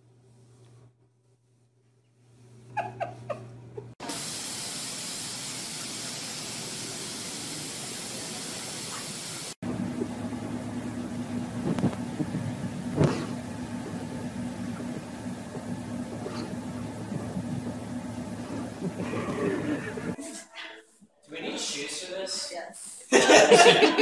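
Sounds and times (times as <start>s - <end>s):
water spraying: 4.0s - 9.6s
car engine humming: 9.6s - 20.2s.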